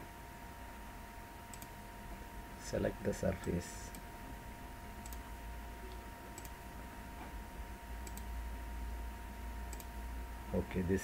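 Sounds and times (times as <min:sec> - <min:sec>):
faint electrical hum: 0:00.0 - 0:11.0
computer mouse clicking: 0:01.5 - 0:01.7, 0:05.0 - 0:05.2, 0:05.9 - 0:06.6, 0:08.0 - 0:08.3, 0:09.7 - 0:09.9.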